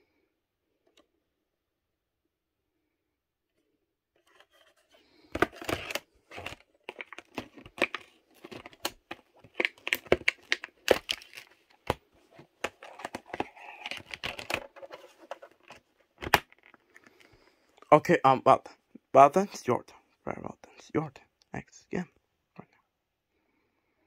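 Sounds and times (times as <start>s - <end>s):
plastic case clicks and snaps: 15.6s - 16.8s.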